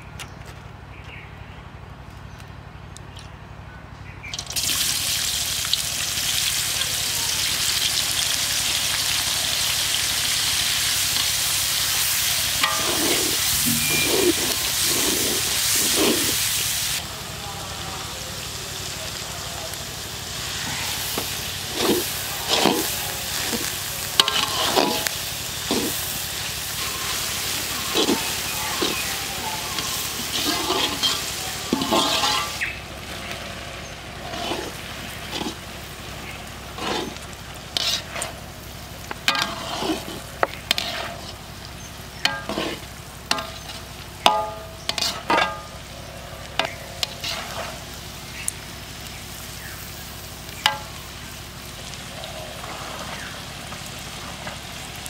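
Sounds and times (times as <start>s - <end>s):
onions sizzling in hot oil: 4.2s - 55.0s
metal spatula scraping pan: 12.6s - 16.4s, 20.6s - 26.1s, 26.7s - 32.6s, 34.2s - 35.6s, 36.7s - 38.4s, 39.2s - 41.4s, 42.2s - 45.7s, 46.6s - 47.9s.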